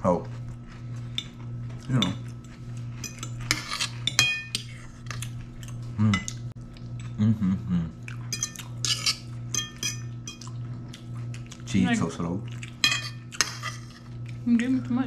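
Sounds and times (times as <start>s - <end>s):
forks scraping on plates: 0.8s - 5.3s, 8.3s - 10.5s, 12.6s - 14.2s.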